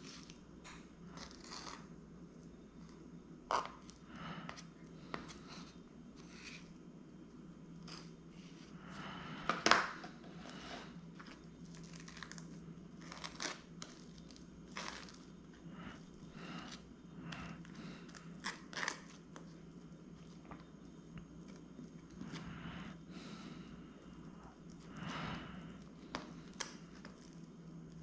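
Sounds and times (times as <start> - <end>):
knife scraping toasted bagel: 1.2 - 1.8.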